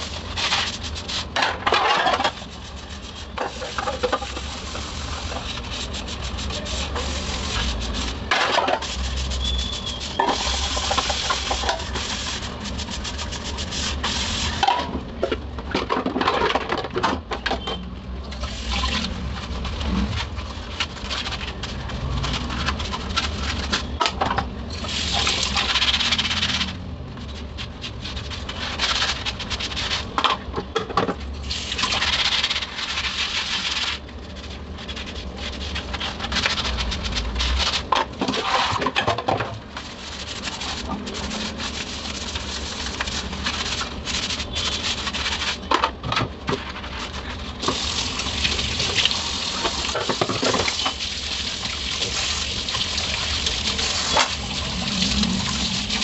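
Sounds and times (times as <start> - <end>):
sponge scrubbing dishes: 0.0 - 14.9, 24.9 - 30.4, 31.0 - 56.0
tap water running: 47.6 - 56.0.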